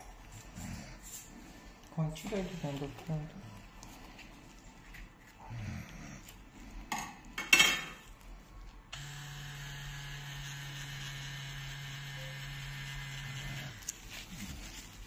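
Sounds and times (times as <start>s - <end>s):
tattoo machine buzzing: 8.9s - 14.0s.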